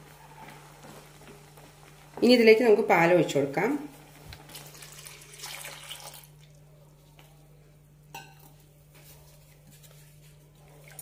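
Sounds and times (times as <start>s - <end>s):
milk pouring and splashing: 4.3s - 6.6s.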